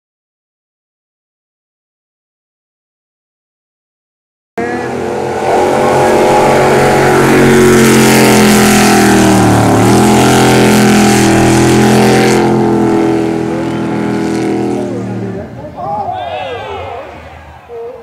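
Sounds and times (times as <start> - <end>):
boat engine running hard: 4.6 - 15.8.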